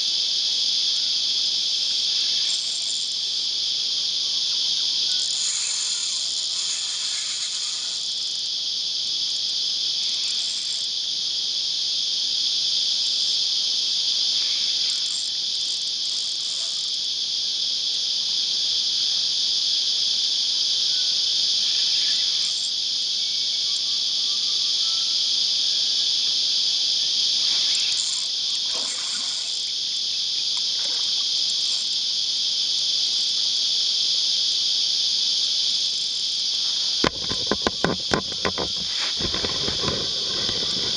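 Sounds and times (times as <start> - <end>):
cicadas buzzing: 0.0 - 40.9.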